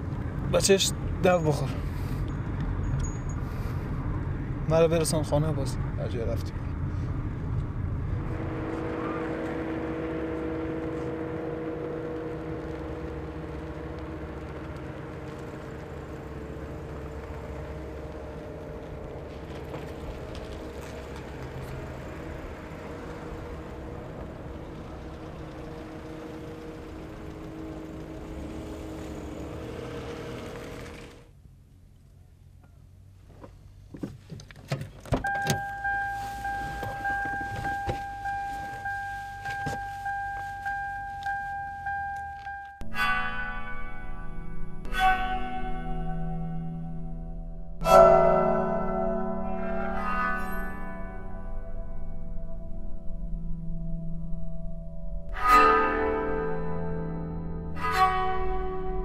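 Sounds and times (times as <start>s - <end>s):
low hums: 0.0s - 32.1s, 35.2s - 59.0s
cars driving past: 0.0s - 33.9s, 35.1s - 59.0s
car warning chime dinging: 35.2s - 58.6s.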